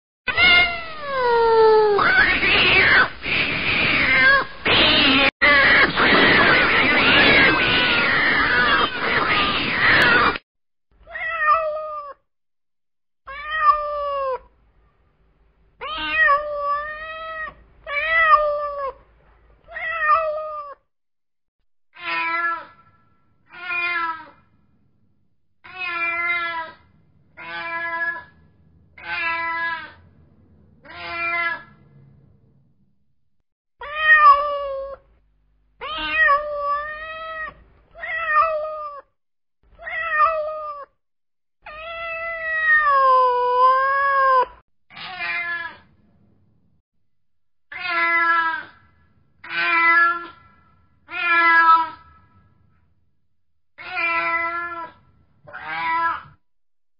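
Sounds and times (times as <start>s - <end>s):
cat meowing: 0.3s - 10.4s, 11.1s - 12.2s, 13.3s - 14.5s, 15.8s - 19.0s, 19.6s - 20.8s, 22.0s - 22.9s, 23.5s - 24.4s, 25.6s - 26.8s, 27.4s - 28.4s, 29.0s - 30.0s, 30.8s - 31.8s, 33.8s - 35.1s, 35.8s - 39.1s, 39.8s - 40.9s, 41.7s - 45.9s, 47.7s - 52.2s, 53.8s - 56.4s.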